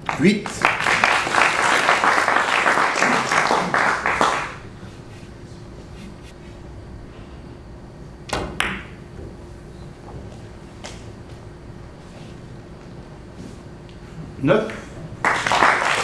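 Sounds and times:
audience applauding: 0.0 - 5.0, 15.2 - 16.0.

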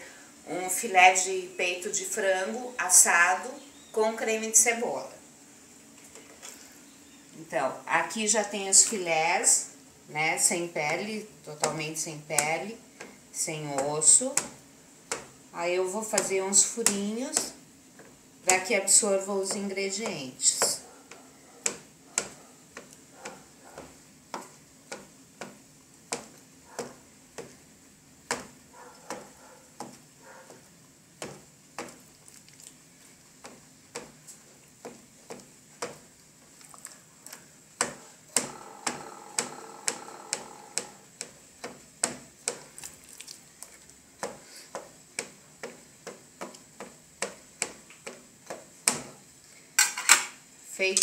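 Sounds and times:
knife tapping cutting board: 19.4 - 27.6, 28.3 - 30.6.

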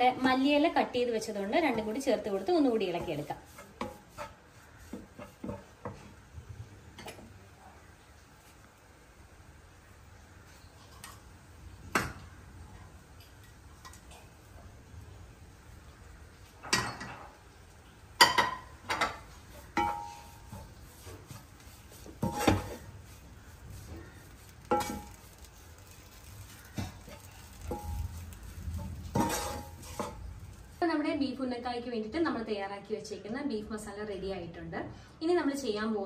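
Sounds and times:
wooden spatula scraping wok: 0.0 - 7.3, 18.2 - 30.9
spatula knocking on pan: 2.9 - 6.0, 18.2 - 21.4, 24.0 - 25.2.

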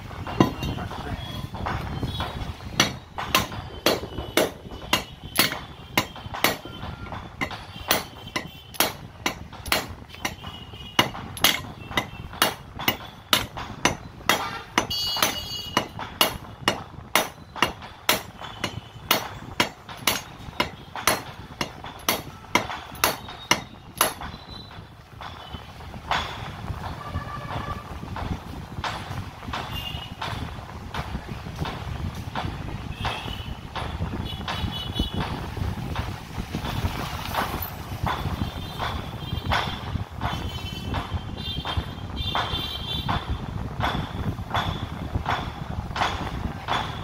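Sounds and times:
hammer striking metal: 0.1 - 47.0
metallic ringing: 0.2 - 27.7.

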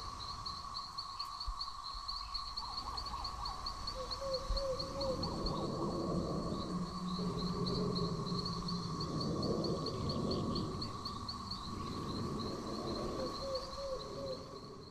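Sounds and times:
insects chirping: 0.0 - 14.9
continuous high drone: 4.8 - 13.2.

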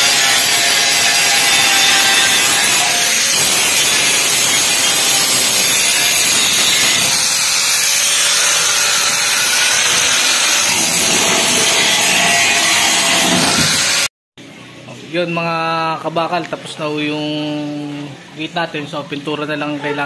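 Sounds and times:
angle grinder grinding steel: 0.0 - 14.1.

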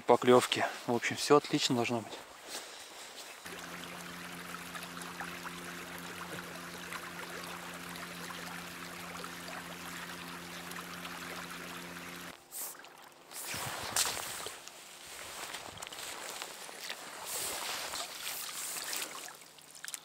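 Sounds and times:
water rushing and trickling: 3.4 - 20.0
low hum: 3.5 - 15.3.

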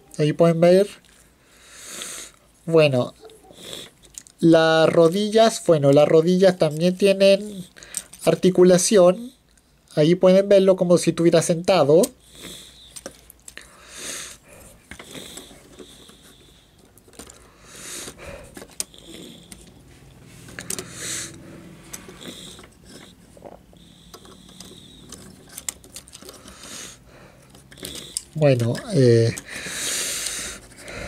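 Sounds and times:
plastic toy joints clicking: 20.5 - 21.0, 24.0 - 26.8, 27.4 - 30.8.

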